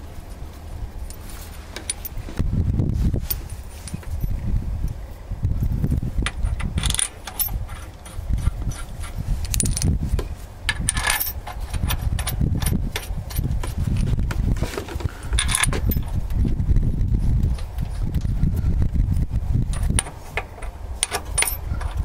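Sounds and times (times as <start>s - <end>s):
low rumble: 0.0s - 22.0s
steel bolts clinking on metal: 1.8s - 2.2s, 6.2s - 9.9s, 10.7s - 14.1s, 15.3s - 16.1s, 19.7s - 22.0s.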